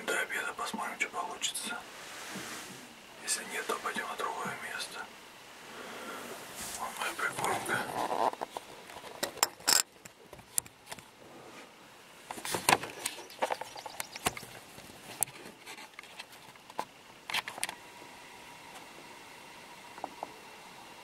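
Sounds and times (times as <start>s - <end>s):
low steady hiss: 0.0s - 21.0s
rustling: 1.8s - 4.0s, 5.6s - 17.5s.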